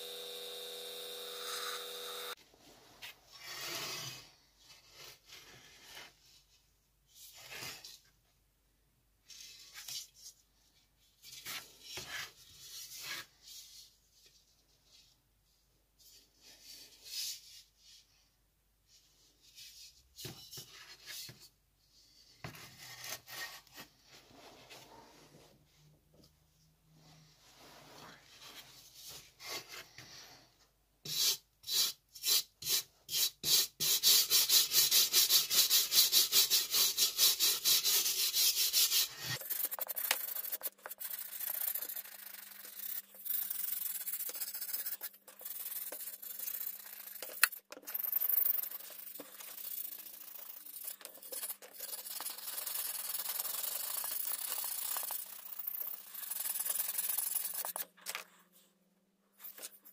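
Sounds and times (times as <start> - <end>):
wire brush scrubbing metal: 34.4 - 57.8.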